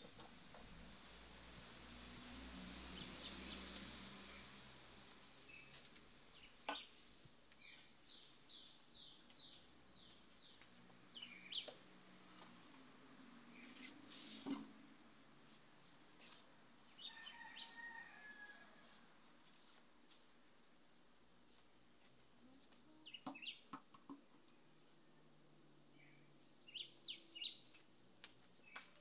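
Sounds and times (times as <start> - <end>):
small birds chirping: 1.8 - 14.4, 18.8 - 25.3, 25.9 - 29.0.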